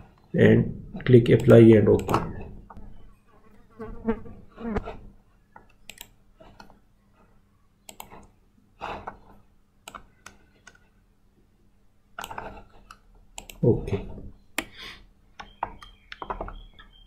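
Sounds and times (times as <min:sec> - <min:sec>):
computer mouse clicking: 0:01.4 - 0:02.3, 0:05.6 - 0:06.8, 0:07.8 - 0:08.4, 0:09.0 - 0:10.9, 0:12.2 - 0:13.7, 0:15.4 - 0:17.0.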